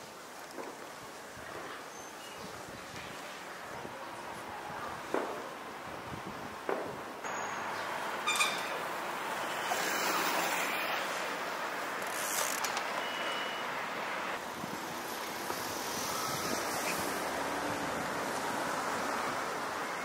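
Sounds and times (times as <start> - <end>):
traffic hiss: 0.0 - 20.0
vehicles passing: 3.2 - 20.0
brief high tone: 8.2 - 8.8.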